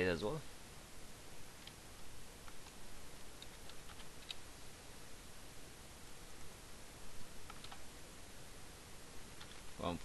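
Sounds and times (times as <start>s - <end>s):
faint steady hiss: 0.0s - 10.0s
computer keyboard typing: 3.4s - 4.4s, 7.5s - 7.8s, 9.4s - 9.6s.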